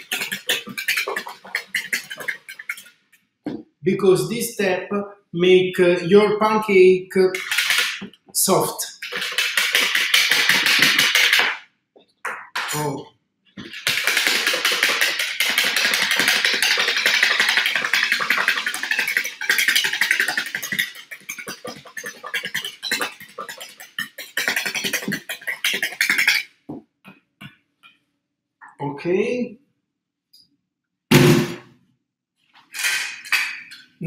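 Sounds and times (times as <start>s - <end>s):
whisk beating in plastic bowl: 0.0s - 3.0s, 7.4s - 8.1s, 8.7s - 11.6s, 13.6s - 26.5s.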